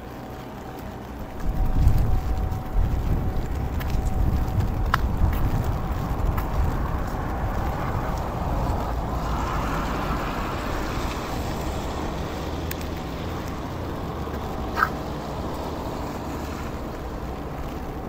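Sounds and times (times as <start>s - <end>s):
low traffic rumble: 0.0s - 18.0s
steady rain: 0.0s - 18.0s
vehicle passing on wet road: 0.0s - 18.0s.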